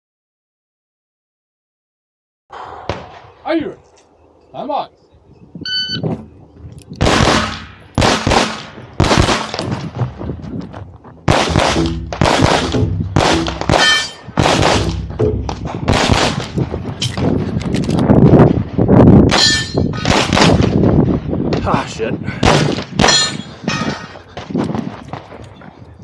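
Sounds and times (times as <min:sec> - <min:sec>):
rapid pistol shots: 0:07.0 - 0:09.8, 0:11.3 - 0:16.6, 0:20.0 - 0:20.8, 0:22.4 - 0:23.4
steel target ringing: 0:11.6 - 0:15.6, 0:19.3 - 0:20.1, 0:23.0 - 0:24.1.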